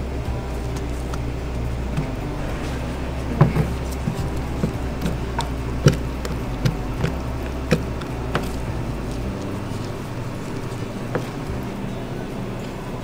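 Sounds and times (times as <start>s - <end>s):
steady low hum: 0.0s - 13.0s
plastic tub clicks and knocks: 3.4s - 8.6s.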